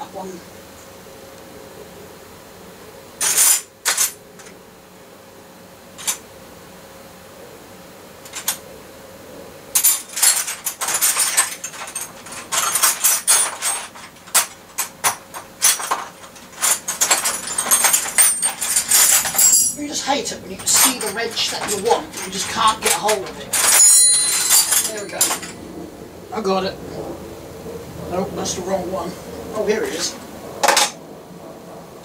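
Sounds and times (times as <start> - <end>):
metal tools clinking and rattling: 3.2 - 4.6, 6.0 - 6.2, 8.3 - 8.6, 9.8 - 25.6, 29.9 - 31.0.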